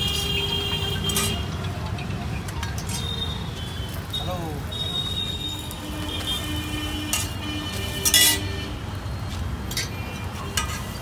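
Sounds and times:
steel spatula scraping a griddle: 1.0 - 1.5, 5.6 - 11.0.

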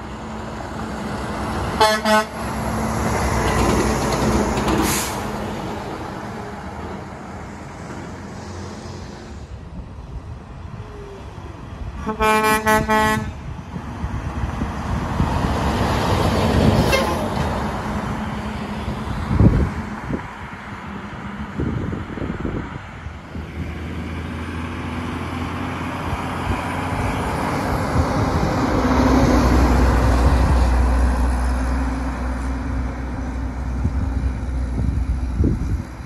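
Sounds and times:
trucks driving past: 0.0 - 36.0
air horn blasts: 1.8 - 2.4, 12.0 - 13.4, 16.8 - 17.3.

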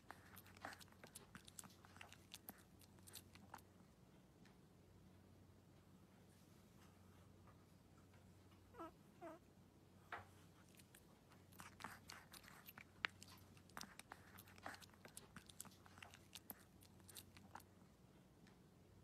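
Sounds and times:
puppy chewing a treat: 0.0 - 3.7, 10.5 - 17.8.

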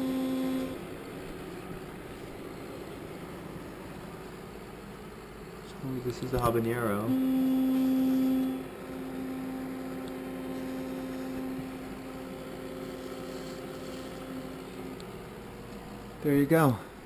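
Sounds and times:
electric toothbrush buzzing: 0.0 - 0.8, 6.9 - 16.0.

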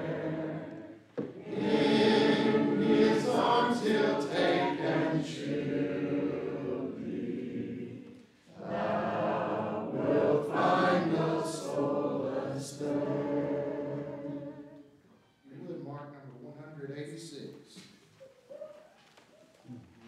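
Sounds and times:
congregation singing a hymn: 0.0 - 15.0.

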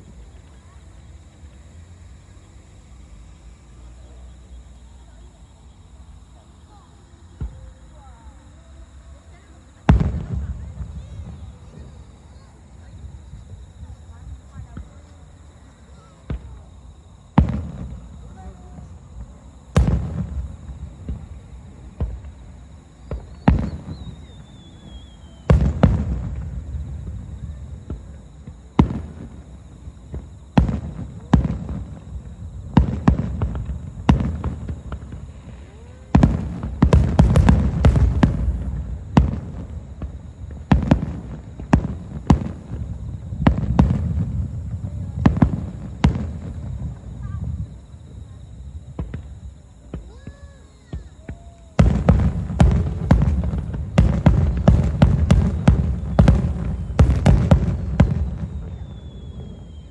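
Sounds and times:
fireworks bursting with booms: 0.0 - 59.9.

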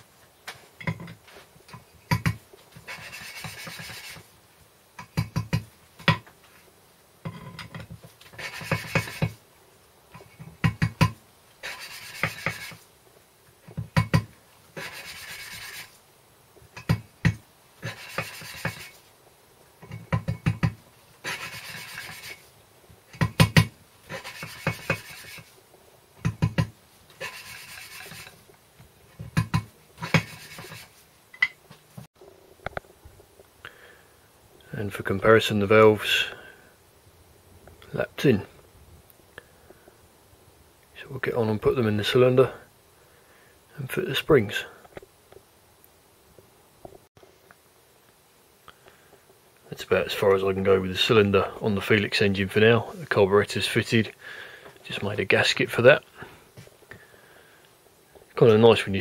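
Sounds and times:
gritty rasping of valve lapping: 2.1 - 4.2, 8.2 - 9.4, 11.6 - 12.8, 14.8 - 15.9, 17.8 - 19.0, 21.2 - 22.4, 24.1 - 25.5, 27.2 - 28.4.

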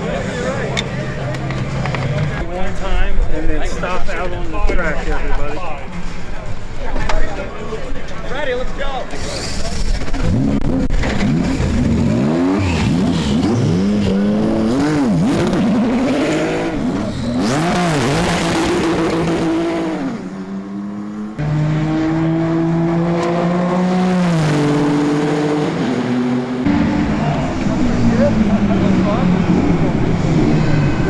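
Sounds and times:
racing car engine revving: 9.2 - 31.0.

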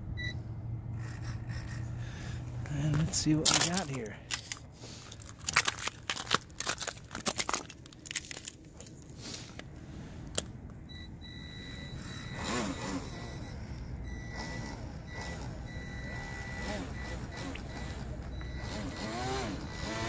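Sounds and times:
ice clicking and crackling: 2.8 - 9.7
high electric motor whine: 11.4 - 20.0.

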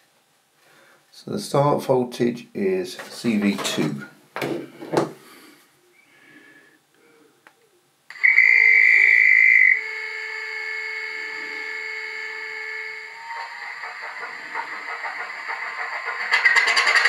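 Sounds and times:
high whistle tone: 8.1 - 15.2
synthesised diesel engine sound: 9.1 - 17.0.

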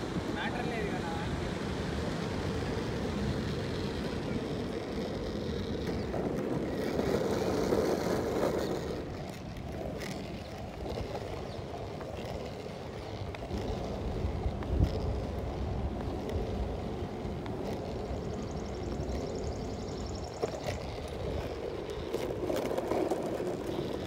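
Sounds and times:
steady rushing noise: 0.0 - 8.4
longboard wheels rolling on asphalt: 0.0 - 24.0
wind on microphone: 0.0 - 24.0.

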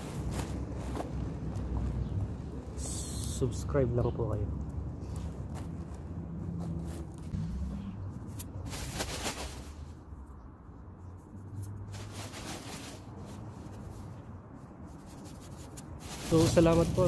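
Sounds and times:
dry grass rustling: 0.0 - 2.4, 4.6 - 10.4, 11.2 - 17.0
plastic bag being handled: 8.3 - 10.0, 11.9 - 14.0, 15.0 - 17.0.

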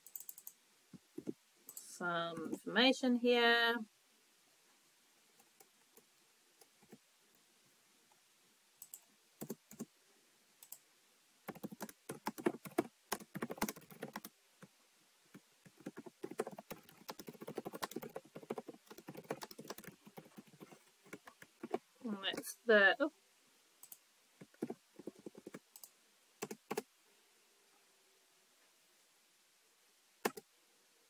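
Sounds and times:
typing on computer keyboard: 0.0 - 0.5, 8.8 - 9.9, 11.5 - 14.3, 15.6 - 22.4, 23.8 - 26.9, 30.2 - 30.4.

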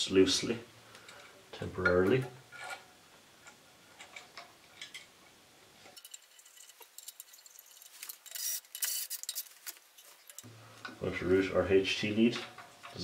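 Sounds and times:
hand tools clicking and rattling: 5.9 - 10.5.

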